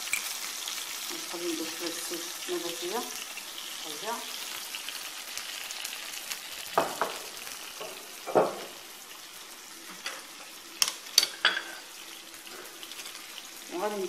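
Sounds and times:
soft steady hiss: 0.0s - 14.0s.

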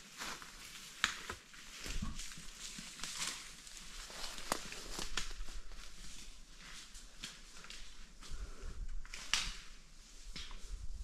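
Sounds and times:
footsteps crunching on forest litter: 0.0s - 10.7s
twigs snapping underfoot: 1.0s - 5.6s, 9.0s - 10.7s.

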